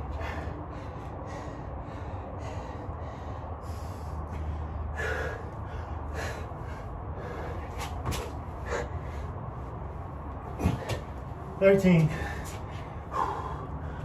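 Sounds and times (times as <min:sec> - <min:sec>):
low steady hum: 0:00.0 - 0:14.0
man gasping for breath: 0:12.1 - 0:14.0.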